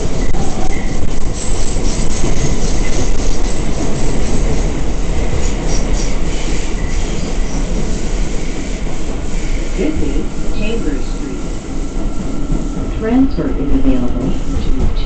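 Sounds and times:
subway wheels rumbling on rail: 0.0s - 15.0s.

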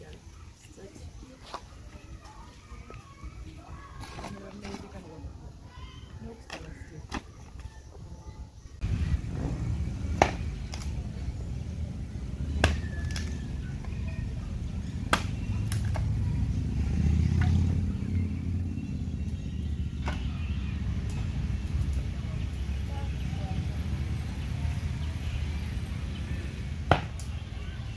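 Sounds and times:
steady low rumble: 8.8s - 26.9s.

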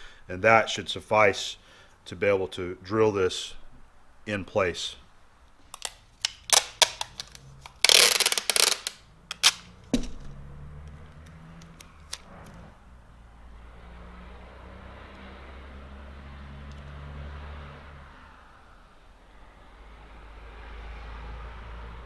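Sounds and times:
tape tearing rip: 5.6s - 10.4s
tape clicking: 5.6s - 12.6s.

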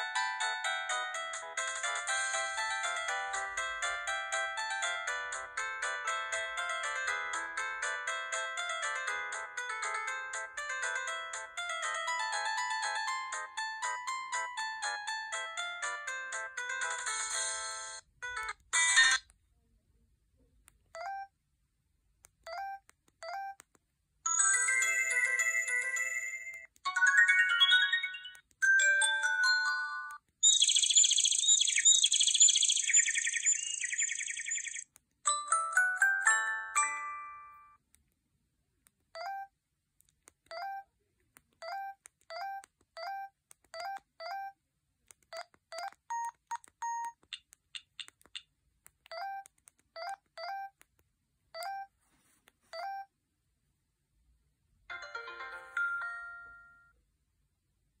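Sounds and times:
electronic ringtone melodies: 0.0s - 19.2s, 24.3s - 37.8s, 54.9s - 57.0s
electronic keypad beeps: 16.8s - 19.2s, 21.0s - 21.3s, 24.3s - 34.8s, 39.2s - 39.5s, 40.5s - 40.9s, 41.6s - 44.6s, 45.3s - 47.3s, 49.1s - 50.8s, 51.6s - 51.9s, 52.7s - 53.1s.

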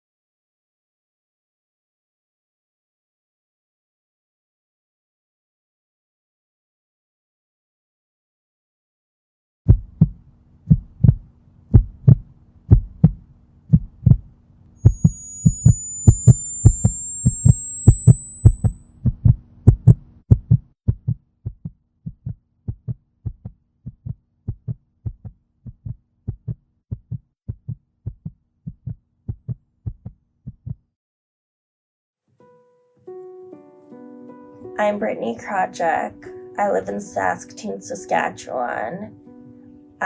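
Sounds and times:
heartbeat thuds: 9.7s - 30.8s
low hum: 9.7s - 30.8s
thin high whine rising: 14.8s - 30.9s.

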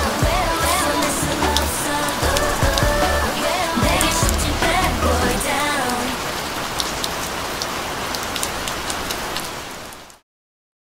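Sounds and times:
drops ticking: 0.0s - 6.0s
steady rain falling: 0.0s - 10.2s.

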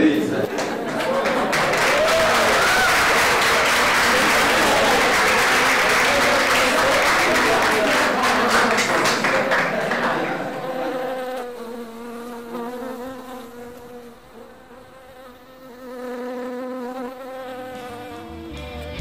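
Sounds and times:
applause: 0.0s - 10.8s
honeybees buzzing: 9.7s - 18.8s.

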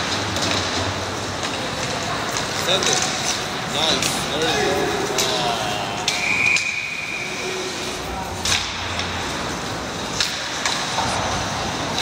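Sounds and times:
background chatter: 1.0s - 10.2s
referee's whistle blast: 6.2s - 7.4s.

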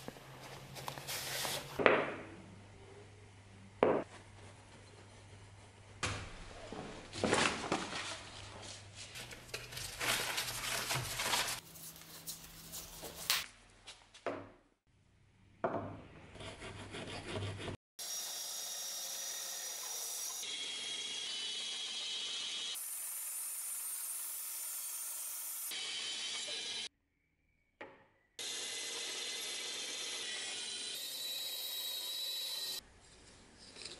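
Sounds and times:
band saw cutting wood: 16.5s - 26.9s, 28.4s - 32.8s.

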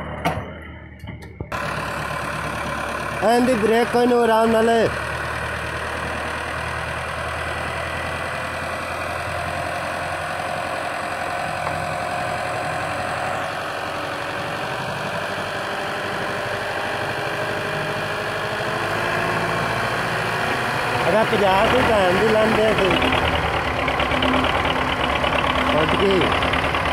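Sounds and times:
tractor diesel engines running: 0.0s - 26.9s.

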